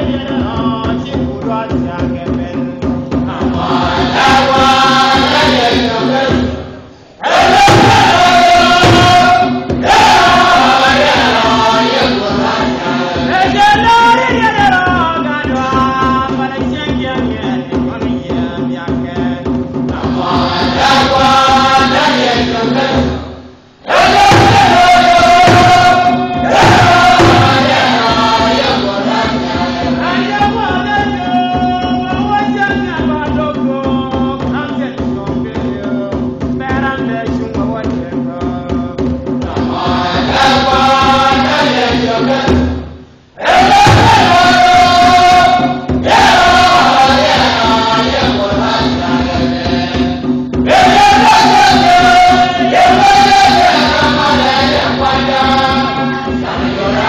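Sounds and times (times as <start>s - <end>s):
choir singing a hymn: 3.3s - 14.1s, 20.0s - 31.9s, 39.5s - 42.8s, 43.4s - 57.0s.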